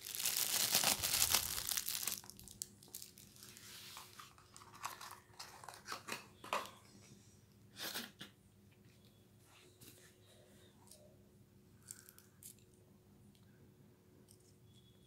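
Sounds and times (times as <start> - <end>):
cardboard and plastic crinkling: 0.0 - 6.2.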